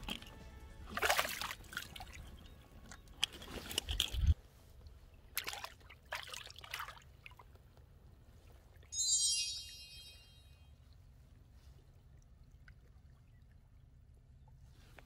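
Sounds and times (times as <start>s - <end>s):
seawater splashing and trickling: 0.0s - 8.9s, 11.1s - 14.7s.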